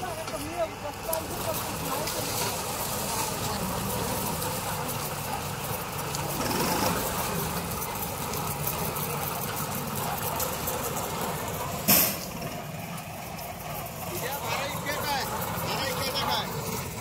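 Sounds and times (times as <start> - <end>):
tractor diesel engine running: 0.0 - 17.0
harvester cutting cane: 0.2 - 17.0
sharp loud crack: 11.9 - 12.3.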